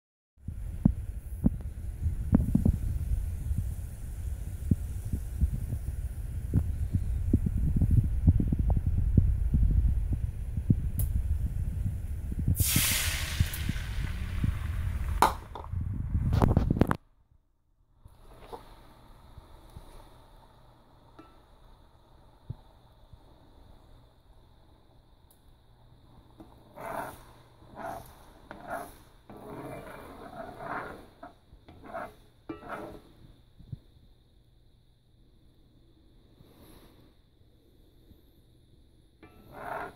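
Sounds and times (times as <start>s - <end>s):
low rumble: 0.5s - 17.1s
egg sizzling in hot skillet: 12.6s - 15.6s
spatula scraping skillet: 26.2s - 33.3s, 39.2s - 39.9s.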